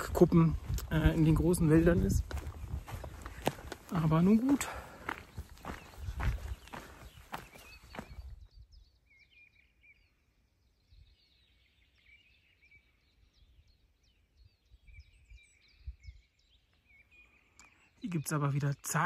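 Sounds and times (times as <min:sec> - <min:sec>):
footsteps on woodland path: 0:00.0 - 0:08.5
faint birdsong chirps: 0:00.0 - 0:19.0.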